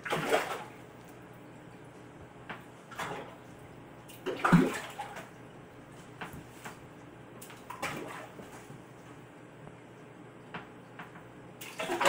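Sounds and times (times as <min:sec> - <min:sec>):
fish splashing at water surface: 0:00.0 - 0:01.2, 0:02.9 - 0:05.4, 0:07.4 - 0:08.7, 0:11.6 - 0:12.0.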